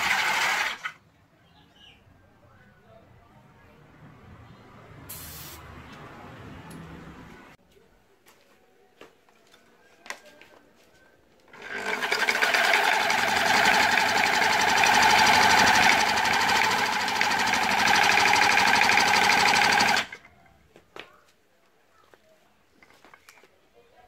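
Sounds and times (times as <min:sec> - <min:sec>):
electric drill driving a pump: 0:00.0 - 0:00.9, 0:11.6 - 0:20.2.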